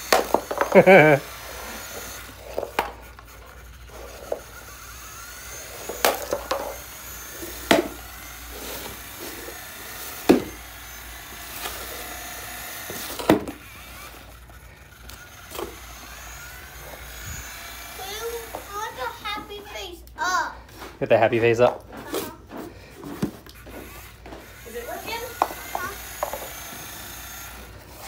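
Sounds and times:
blade knocking on box: 0:00.0 - 0:00.9, 0:05.8 - 0:06.8, 0:07.6 - 0:08.0, 0:10.2 - 0:10.6, 0:25.3 - 0:26.6
small electric motors whirring: 0:00.0 - 0:28.0.

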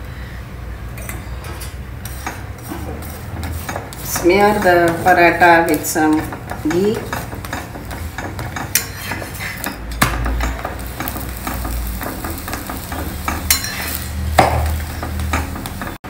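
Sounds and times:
spatula scraping iron pan: 0:02.0 - 0:16.0
flatbread sizzling in ghee: 0:10.3 - 0:16.0.

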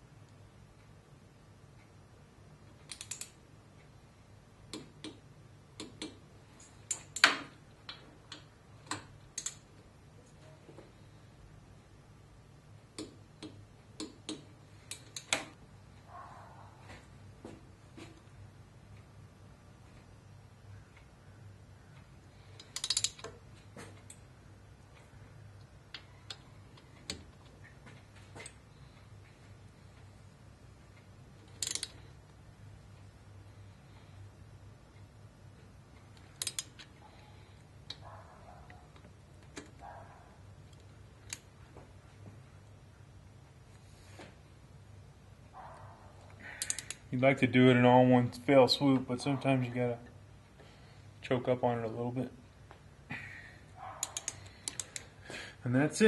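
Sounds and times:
torque wrench clicking: 0:02.9 - 0:03.4, 0:22.6 - 0:23.4, 0:31.5 - 0:32.0, 0:36.2 - 0:36.8, 0:46.6 - 0:47.0, 0:54.0 - 0:55.1
torque wrench ratcheting clicks: 0:22.6 - 0:23.3, 0:31.6 - 0:31.9, 0:36.4 - 0:36.7, 0:46.6 - 0:47.0.

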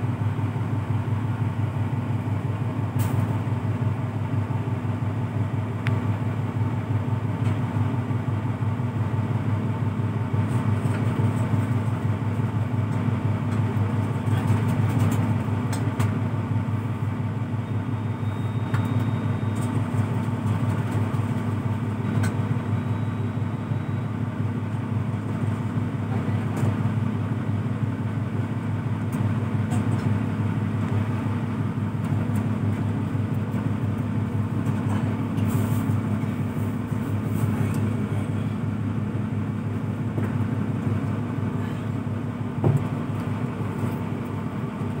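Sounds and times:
boat engine droning: 0:21.5 - 0:45.0.

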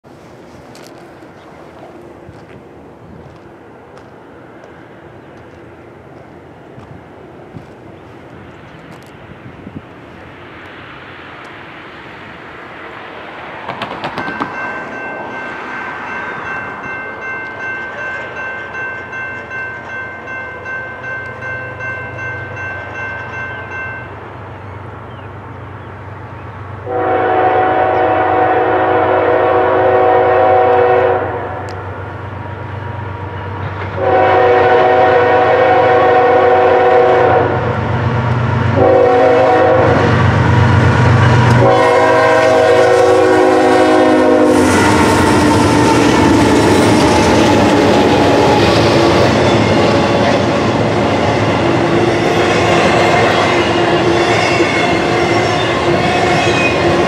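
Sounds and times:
diesel locomotives rumbling: 0:00.0 - 0:57.0
railroad crossing bell ringing: 0:14.1 - 0:24.9, 0:41.1 - 0:57.0
train air horn blasts: 0:26.8 - 0:31.8, 0:34.0 - 0:37.8, 0:38.7 - 0:50.4.

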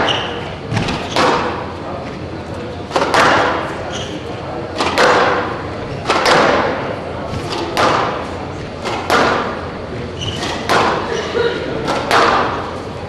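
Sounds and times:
squash ball cracks off racquets and walls: 0:00.0 - 0:01.7, 0:02.9 - 0:03.9, 0:04.7 - 0:09.7, 0:10.3 - 0:11.1, 0:11.8 - 0:12.8.

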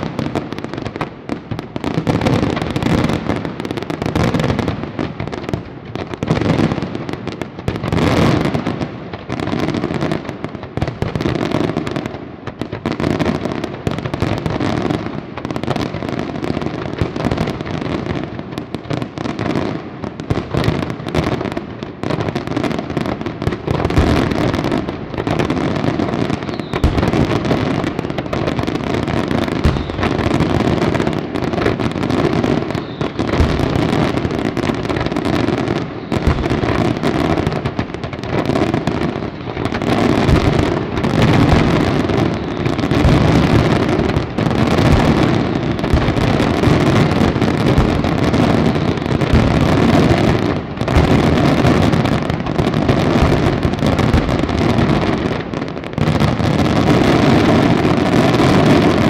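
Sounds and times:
fireworks bursting: 0:00.0 - 0:59.0.

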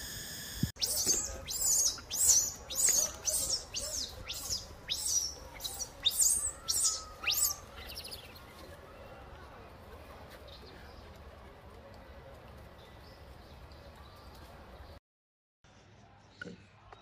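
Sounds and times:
high-pitched chirping calls: 0:00.8 - 0:08.4.

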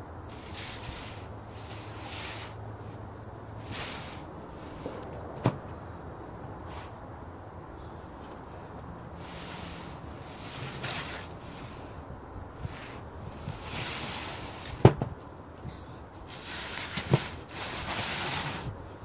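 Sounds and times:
foam mats rustling and scraping: 0:00.3 - 0:07.1, 0:08.2 - 0:19.0
sharp knocks on wooden deck: 0:05.2 - 0:05.8, 0:14.8 - 0:15.2.

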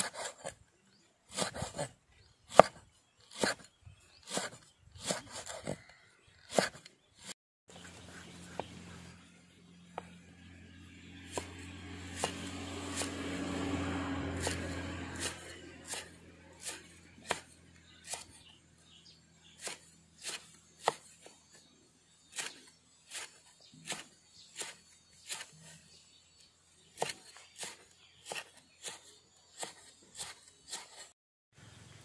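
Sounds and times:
cleaver chopping on wooden block: 0:02.5 - 0:03.7, 0:06.5 - 0:06.9, 0:11.3 - 0:13.2, 0:14.4 - 0:18.5, 0:19.5 - 0:21.3, 0:27.0 - 0:31.1.

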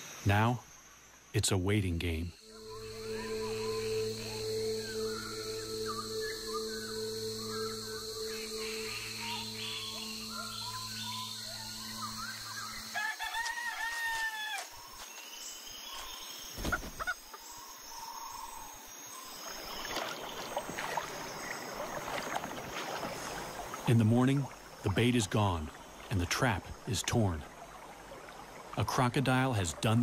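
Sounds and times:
steady low hum: 0:02.0 - 0:12.9
rooster crowing: 0:12.9 - 0:14.7.

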